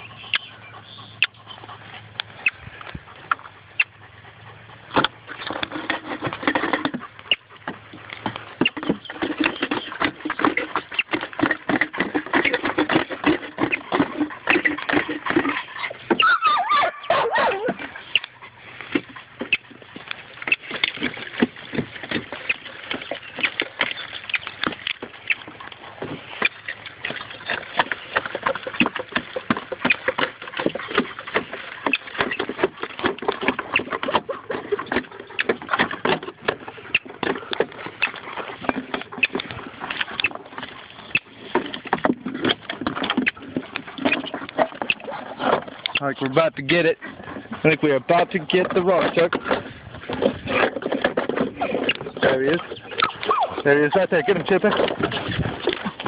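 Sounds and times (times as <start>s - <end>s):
dog whining: 15.5s - 18.6s, 52.8s - 54.5s.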